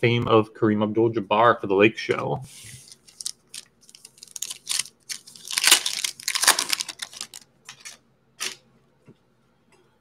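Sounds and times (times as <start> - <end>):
foil wrapper tearing and crinkling: 2.9 - 8.6.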